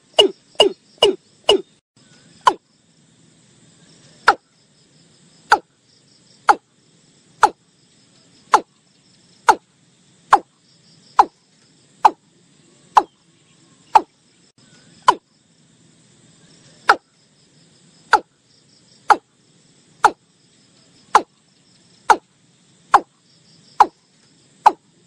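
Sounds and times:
bird calling sharp notes: 0.0s - 1.8s
insects trilling: 0.0s - 25.0s.

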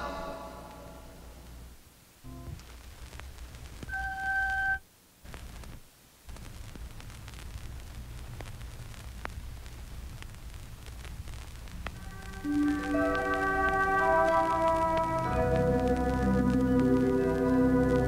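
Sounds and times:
tape hiss: 0.0s - 18.0s
faint clicks: 5.2s - 18.0s.

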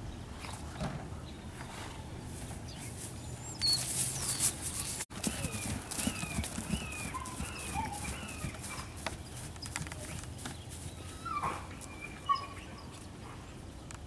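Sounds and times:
bird chirping: 2.2s - 14.0s
hoofbeats on grass: 2.4s - 12.2s.

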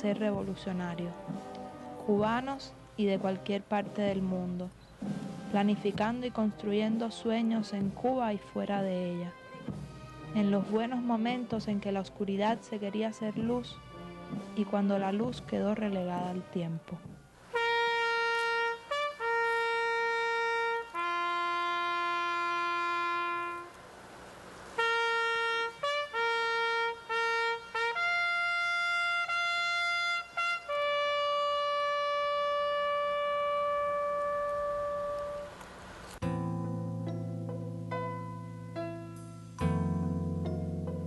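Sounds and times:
trumpet playing long held notes: 12.7s - 14.8s, 17.5s - 23.8s, 24.8s - 35.6s.

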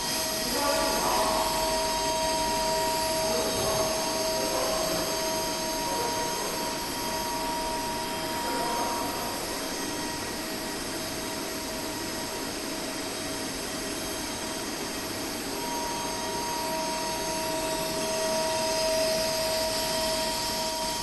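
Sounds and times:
milling machine whirring: 0.0s - 21.0s.

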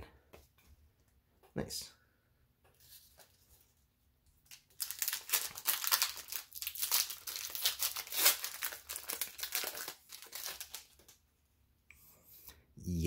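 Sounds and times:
foil wrapper crinkling: 4.4s - 11.2s.

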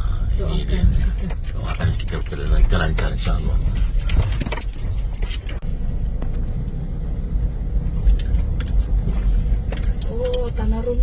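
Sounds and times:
engine and tyre rumble: 0.0s - 11.0s.

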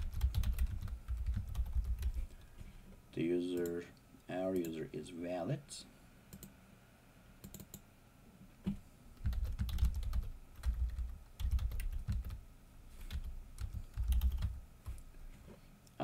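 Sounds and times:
computer keyboard typing: 0.0s - 2.3s, 7.4s - 7.8s, 9.2s - 12.4s, 13.1s - 15.0s.

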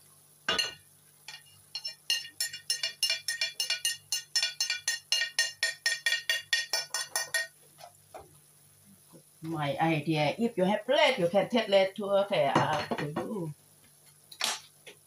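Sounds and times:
utensil tapping ceramic plate: 0.5s - 7.5s.

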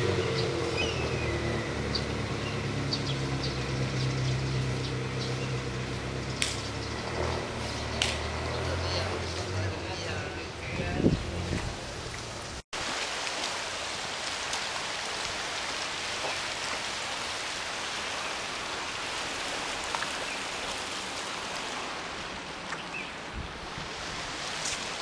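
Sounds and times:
sea water washing among rocks: 12.8s - 25.0s.

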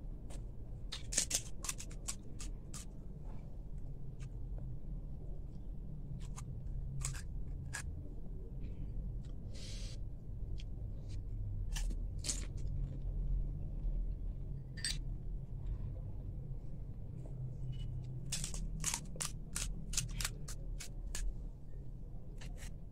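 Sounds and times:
low steady hum: 0.0s - 22.9s
crunching crisp shells: 0.9s - 2.9s, 6.2s - 7.9s, 11.7s - 12.8s, 18.2s - 21.3s.

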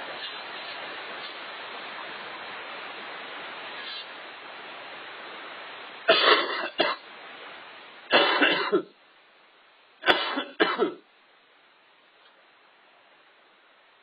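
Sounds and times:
person coughing: 6.1s - 7.0s, 8.1s - 8.9s, 10.0s - 11.0s.

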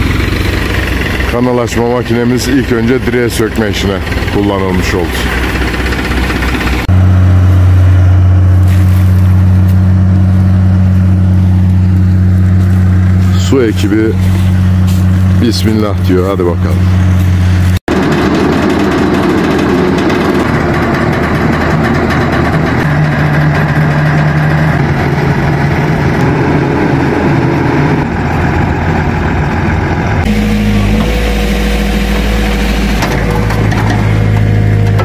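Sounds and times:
backhoe engine running: 0.0s - 35.0s
drilling rig engine running: 0.0s - 35.0s.

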